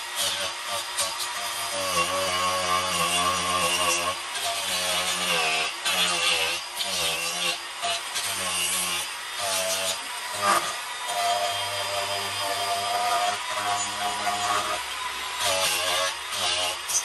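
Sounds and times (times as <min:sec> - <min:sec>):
rasping of wood: 0:00.0 - 0:17.0
angle grinder motor whine: 0:09.0 - 0:17.0.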